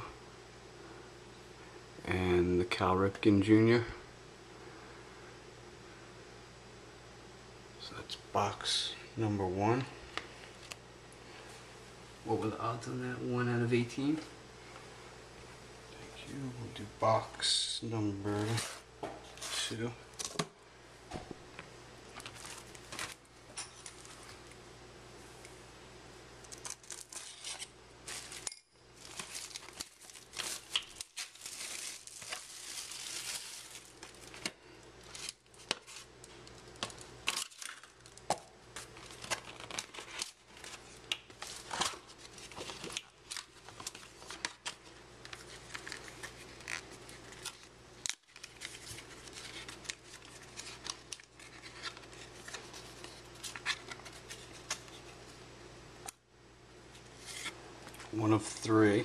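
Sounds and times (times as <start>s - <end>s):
plastic wrap crinkling and tearing: 22.1s - 23.3s, 26.4s - 55.0s.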